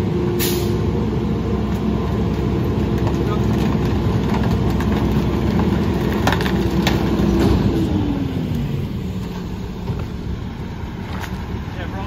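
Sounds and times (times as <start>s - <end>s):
garbage truck engine and packer: 0.0s - 12.0s
wood cracking: 2.3s - 7.6s.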